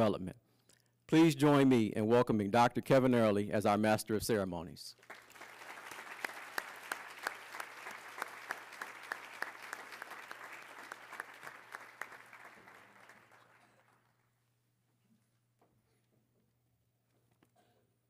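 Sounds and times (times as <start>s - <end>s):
audience applauding: 5.0s - 14.3s.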